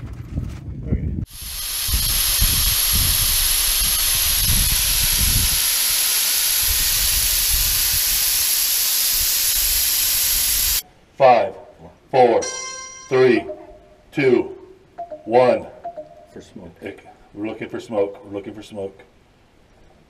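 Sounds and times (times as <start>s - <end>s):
wind buffeting microphone: 0.0s - 5.6s
rocket gas venting hiss: 1.3s - 10.8s.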